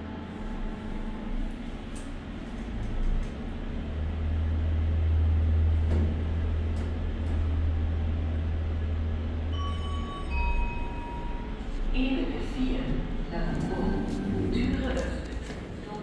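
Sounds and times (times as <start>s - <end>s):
elevator drive hum: 0.0s - 16.0s
two-note electronic chime: 9.5s - 11.6s.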